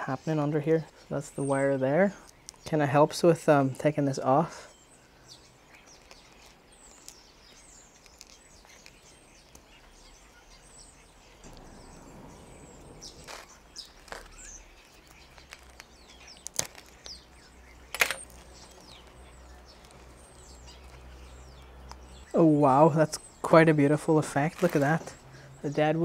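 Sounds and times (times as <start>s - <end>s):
small birds chirping: 0.0s - 26.0s
raffia rustling: 11.5s - 21.4s, 24.3s - 25.4s.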